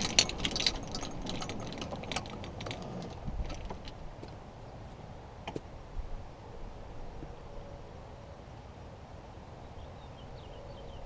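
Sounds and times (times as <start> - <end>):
light clicks and rattles: 0.0 - 4.4
golf cart rumbling: 0.0 - 7.6.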